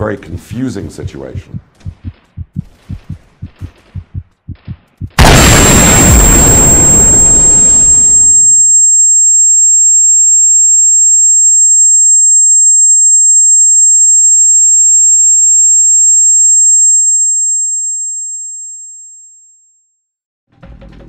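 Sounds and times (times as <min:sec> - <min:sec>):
high-pitched ringing tone: 0:05.2 - 0:19.9.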